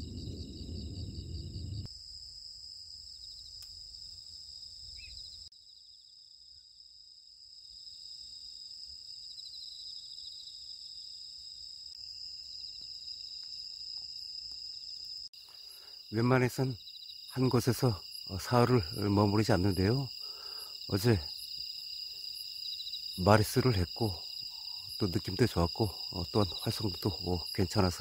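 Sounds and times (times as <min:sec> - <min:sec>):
low rumble: 0:00.0 - 0:01.9
night insects trilling: 0:00.0 - 0:28.0.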